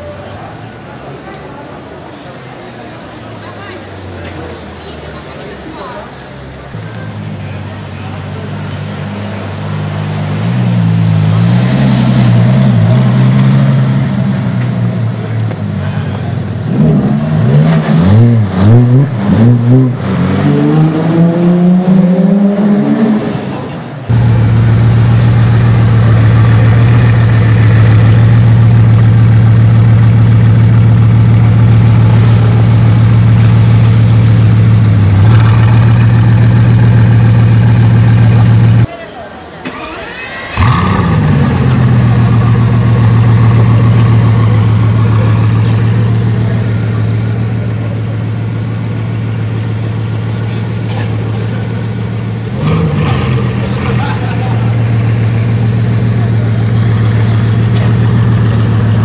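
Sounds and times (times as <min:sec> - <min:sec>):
sports car engine revving: 0:08.9 - 0:38.9, 0:39.8 - 0:59.0
car engine idling: 0:24.0 - 0:38.9, 0:39.6 - 0:52.6, 0:53.4 - 0:59.0.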